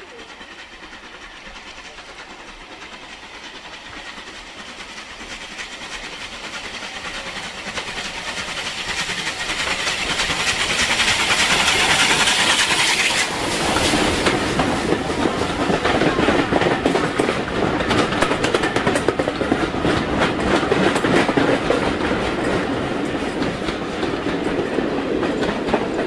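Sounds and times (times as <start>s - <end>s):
rushing steam hiss: 0.0s - 26.0s
steam train passing: 0.0s - 26.0s
wheels clattering over rail joints: 0.0s - 26.0s.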